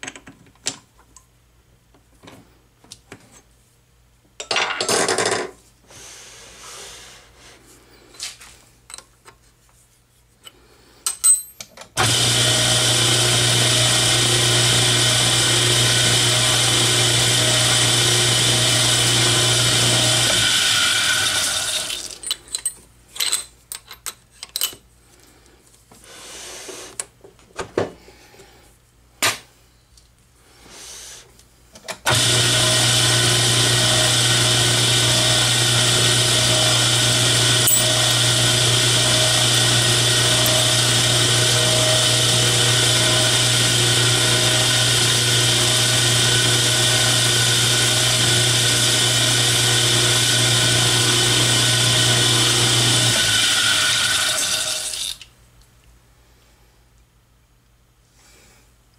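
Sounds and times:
drill drilling into metal: 0:12.0 - 0:22.2, 0:32.1 - 0:55.2
metal lathe humming: 0:12.0 - 0:22.2, 0:32.1 - 0:55.1.

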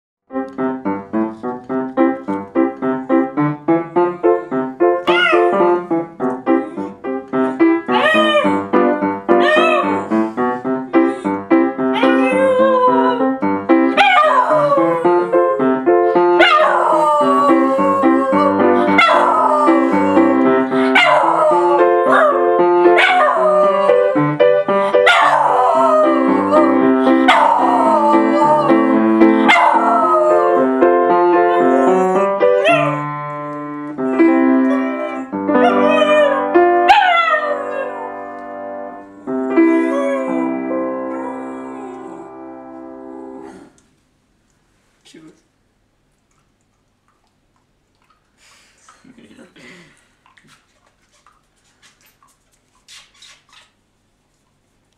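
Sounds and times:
upright piano playing: 0:00.3 - 0:43.5
small dog howling: 0:05.1 - 0:05.6, 0:07.9 - 0:08.7, 0:09.4 - 0:10.0, 0:12.0 - 0:13.4, 0:14.0 - 0:15.8, 0:16.4 - 0:24.3, 0:25.0 - 0:30.8, 0:34.6 - 0:38.1.

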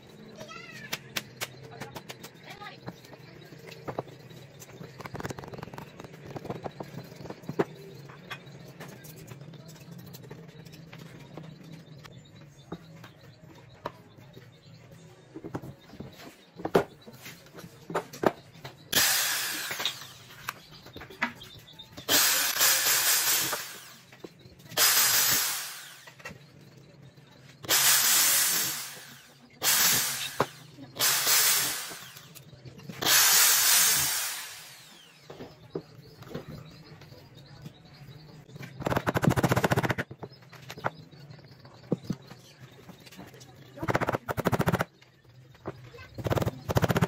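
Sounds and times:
electric drill bursts: 0:18.9 - 0:20.4, 0:22.1 - 0:24.1, 0:24.8 - 0:26.2, 0:27.6 - 0:32.4, 0:33.0 - 0:35.3
rapid clatter of clicks: 0:38.7 - 0:40.8, 0:43.0 - 0:45.1, 0:46.2 - 0:47.0.

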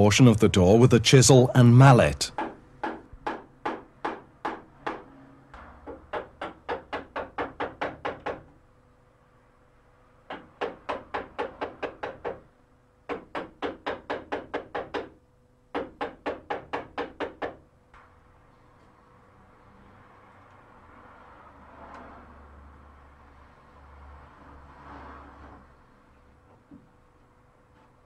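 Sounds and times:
mallet knocking a chisel into wood: 0:02.3 - 0:05.0, 0:05.8 - 0:08.6, 0:10.3 - 0:12.5, 0:13.1 - 0:17.6.

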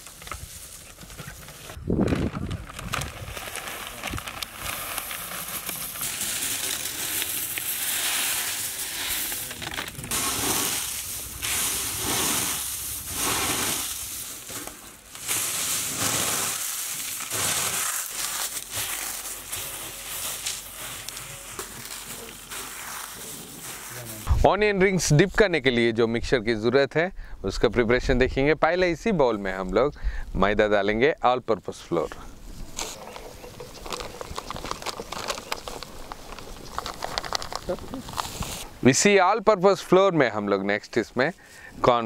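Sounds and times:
corn flakes crunching: 0:00.0 - 0:24.3, 0:32.8 - 0:38.7.

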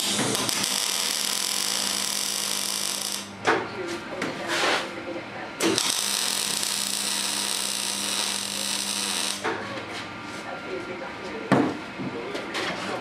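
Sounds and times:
welding arc hissing: 0:00.0 - 0:03.3, 0:05.8 - 0:09.4.

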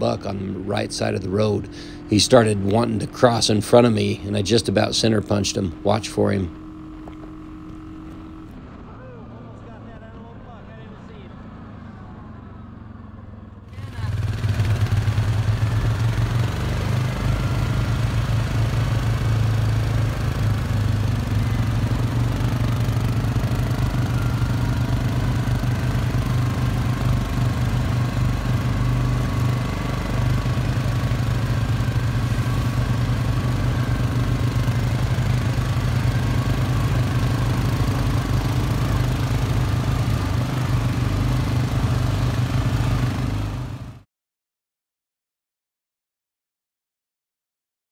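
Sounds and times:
atv engine running: 0:00.0 - 0:08.9, 0:11.5 - 0:44.0.

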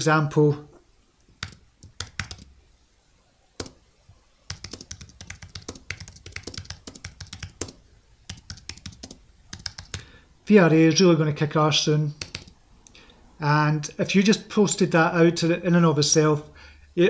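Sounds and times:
typing on keyboard: 0:01.4 - 0:02.5, 0:04.5 - 0:10.1, 0:12.2 - 0:12.6.

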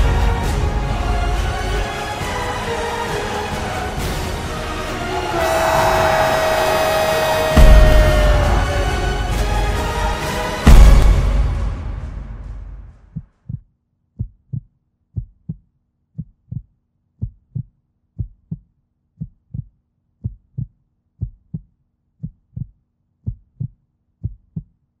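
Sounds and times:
music: 0:00.0 - 0:13.7
heartbeat thumps: 0:07.4 - 0:08.8, 0:13.1 - 0:15.6, 0:16.2 - 0:24.7.

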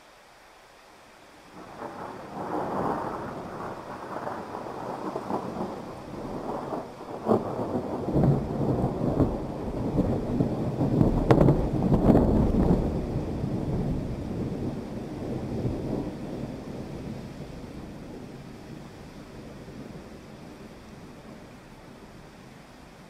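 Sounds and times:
steady rain: 0:00.0 - 0:23.0
rolling thunder: 0:01.6 - 0:22.3
sharp thunder crack: 0:01.7 - 0:16.1.

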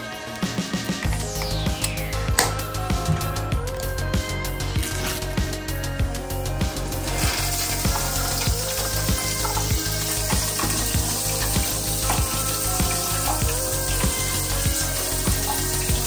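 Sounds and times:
background music with steady beat: 0:00.0 - 0:16.0
water spraying from shower: 0:06.8 - 0:16.0.

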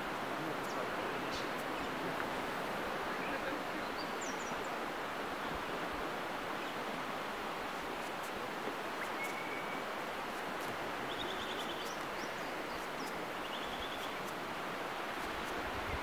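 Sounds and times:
distant surf: 0:00.0 - 0:16.0
wind: 0:00.0 - 0:16.0
faint high bird chirps: 0:09.0 - 0:09.8.

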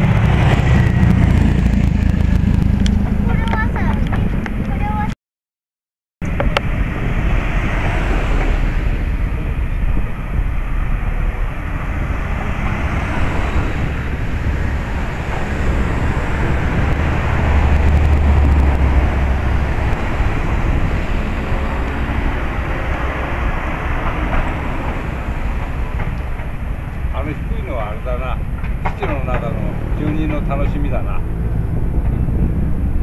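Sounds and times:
fireworks rumble: 0:00.0 - 0:05.1.

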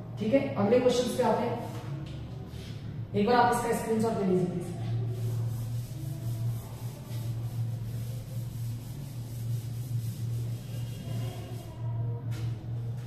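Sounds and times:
steady low hum: 0:00.0 - 0:13.0
faint rubbing: 0:04.8 - 0:12.2.

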